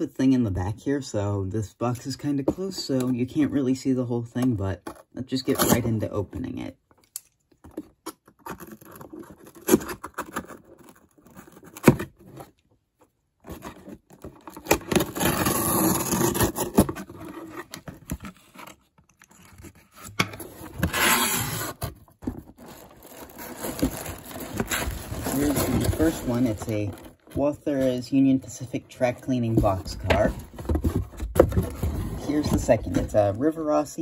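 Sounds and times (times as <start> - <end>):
cardboard box being torn open: 8.3 - 12.5, 13.5 - 18.7, 19.9 - 27.4.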